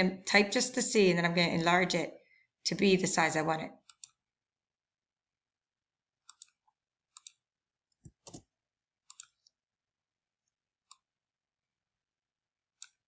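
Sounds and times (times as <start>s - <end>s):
computer mouse clicks: 3.8s - 4.2s, 6.2s - 7.4s, 8.0s - 8.5s, 9.1s - 9.5s, 12.8s - 13.0s.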